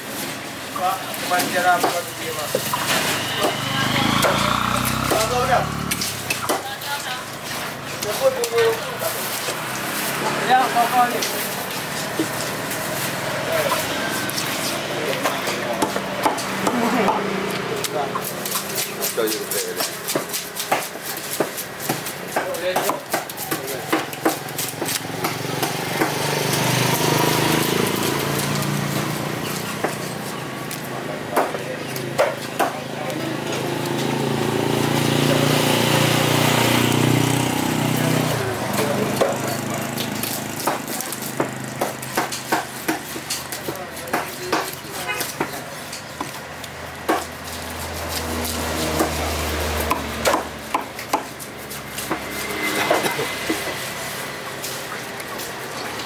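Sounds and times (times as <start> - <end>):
knife chopping on a block: 18.4 - 26.3, 31.3 - 32.8, 40.2 - 46.4, 47.0 - 47.4, 48.1 - 53.6.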